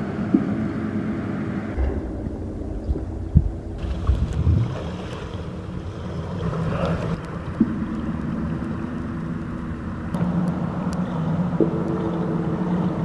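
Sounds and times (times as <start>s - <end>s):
low underwater drone: 0.0s - 13.0s
faint clicks: 6.4s - 12.2s.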